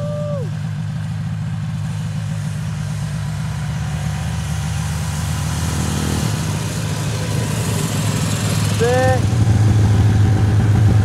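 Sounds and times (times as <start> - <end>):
snowmobile engine running: 1.9 - 11.0.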